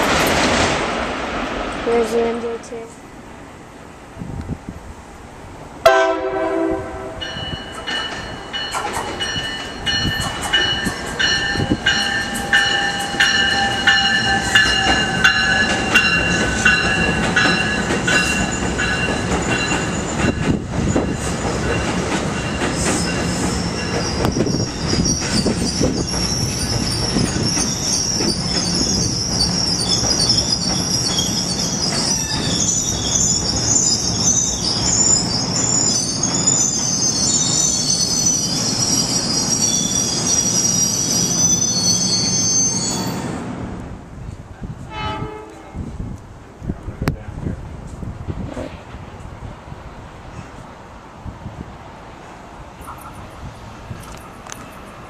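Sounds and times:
train whine and rumble: 0:00.0 - 0:55.0
train horn blast: 0:05.8 - 0:07.4, 0:44.8 - 0:45.9
train wheels clicking over rail joints: 0:07.6 - 0:33.7
high-pitched wheel squeal: 0:23.0 - 0:43.3.

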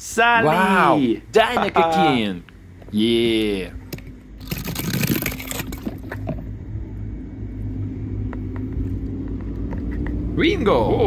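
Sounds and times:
low steady rumble: 0:00.0 - 0:11.0
toy car clattering over wooden blocks: 0:04.4 - 0:06.4.

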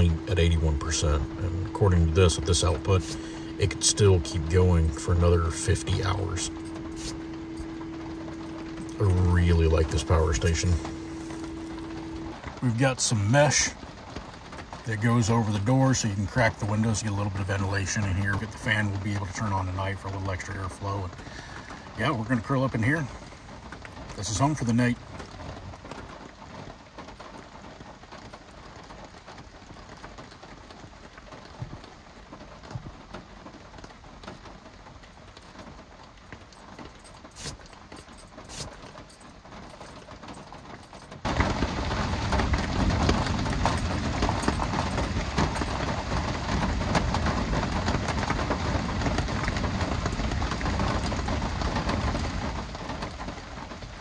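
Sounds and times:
rain on a vehicle roof: 0:00.0 - 0:54.0.

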